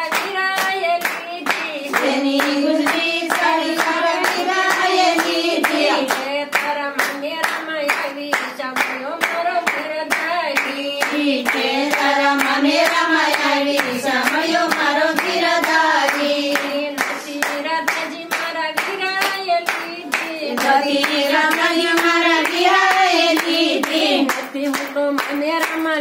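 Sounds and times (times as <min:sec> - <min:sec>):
hands clapping: 0:00.0 - 0:26.0
women singing together: 0:00.0 - 0:26.0.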